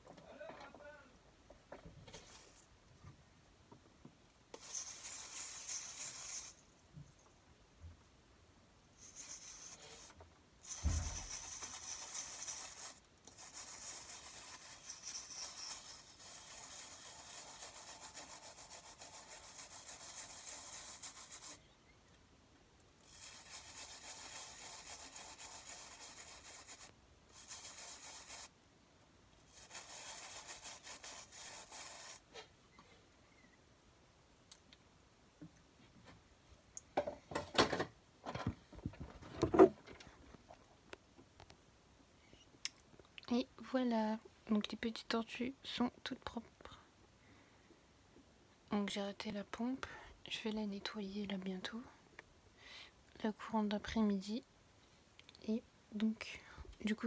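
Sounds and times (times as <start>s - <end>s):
toothbrush scrubbing shell: 4.6s - 6.7s, 9.0s - 21.6s, 23.0s - 28.5s, 29.5s - 32.2s
low thump: 10.8s - 11.2s.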